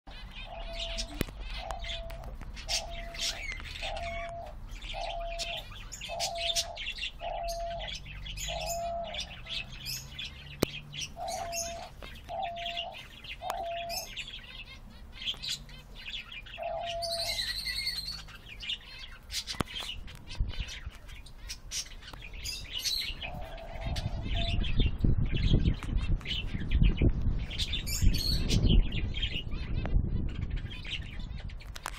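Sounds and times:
dove cooing: 0.1 - 14.8, 16.0 - 18.5, 22.4 - 24.8
small birds chirping: 0.1 - 31.9.

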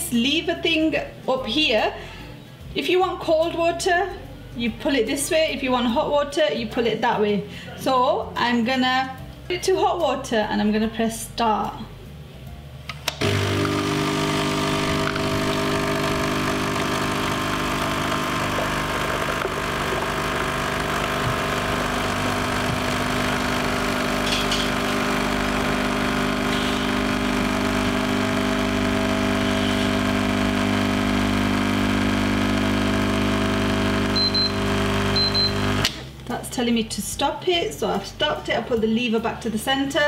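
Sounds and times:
coffee machine pump humming: 13.1 - 36.0
short high beeps: 34.2 - 34.6, 35.2 - 35.6.

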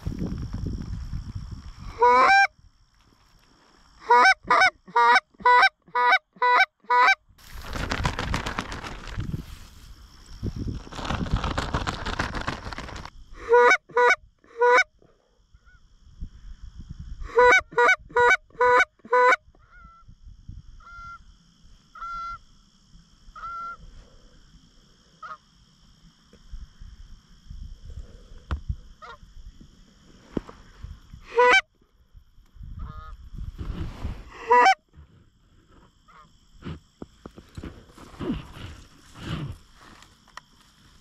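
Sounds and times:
goose honking: 31.3 - 31.6, 34.4 - 34.8.

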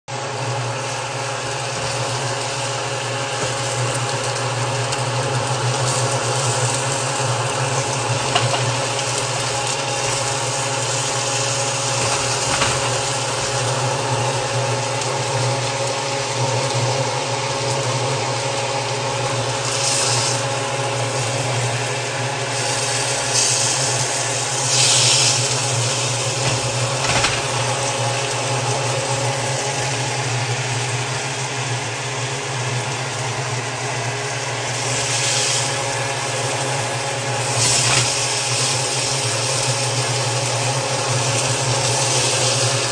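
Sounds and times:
steady machine hum: 0.1 - 42.9.

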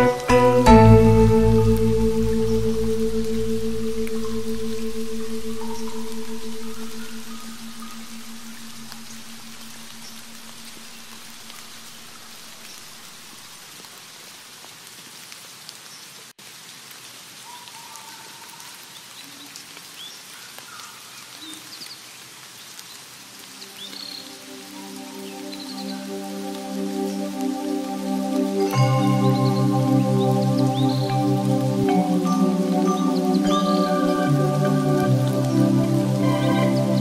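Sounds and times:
music note: 0.0 - 10.0, 26.0 - 37.0
steady rain falling: 0.0 - 37.0
faint bird chirps: 4.2 - 10.3.

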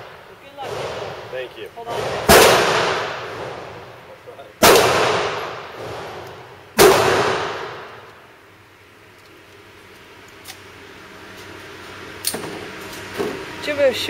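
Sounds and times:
pistol shots echoing indoors: 1.9 - 3.8, 4.6 - 8.2.

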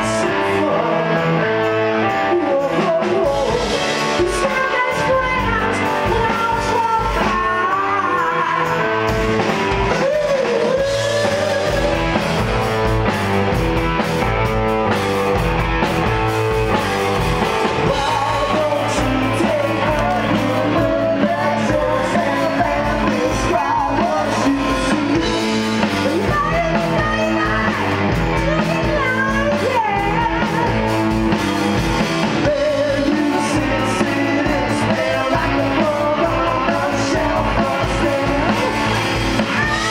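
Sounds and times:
rock band playing: 0.0 - 39.9
woman singing: 2.1 - 9.2, 17.8 - 31.0, 32.4 - 39.9.

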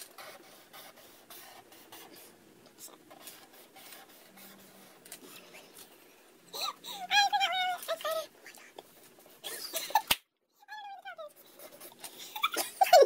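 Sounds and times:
marker scratching on paper: 0.0 - 5.9, 11.2 - 12.4.

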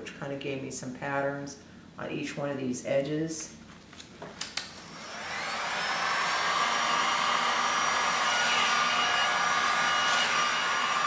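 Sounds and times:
heat gun blowing air: 4.8 - 11.0.

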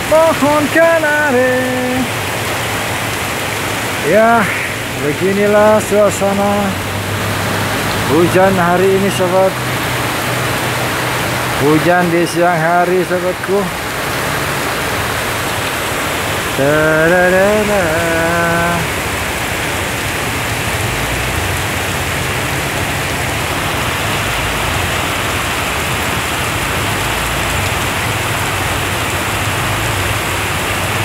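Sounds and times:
person singing: 0.0 - 2.1, 4.0 - 6.8, 8.1 - 9.6, 11.6 - 13.7, 16.5 - 19.0
heavy rain pouring: 0.0 - 31.0.

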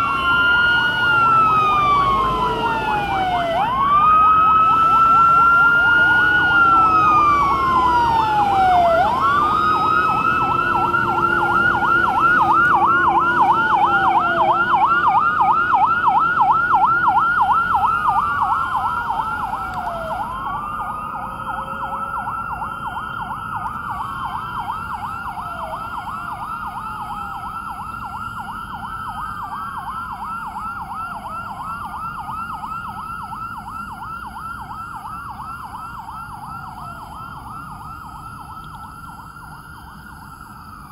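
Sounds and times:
fire truck sirens wailing and yelping: 0.0 - 40.9.

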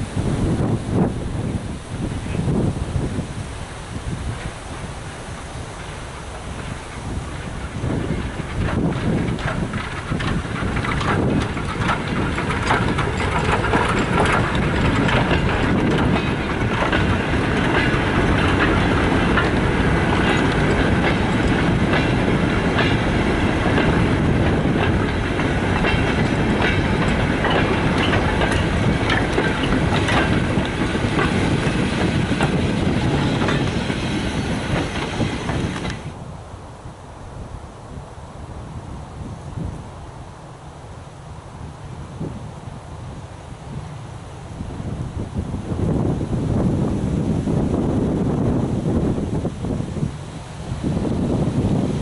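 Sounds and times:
train rumble: 0.0 - 52.0
wagon wheels clattering on rail joints: 5.8 - 36.2.

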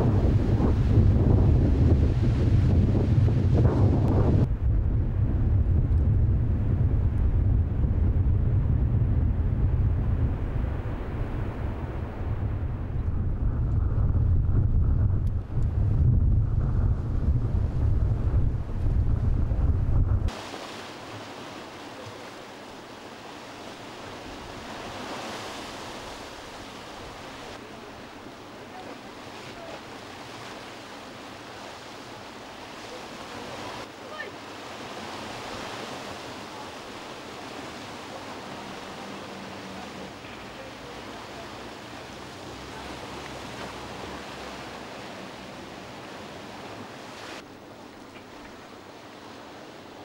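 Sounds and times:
sea surf washing against rocks: 20.0 - 50.0.

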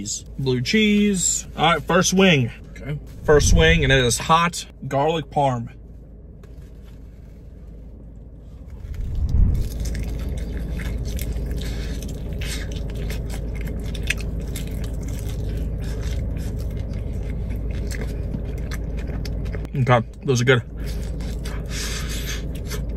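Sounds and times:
person chewing and smacking: 9.6 - 22.9.

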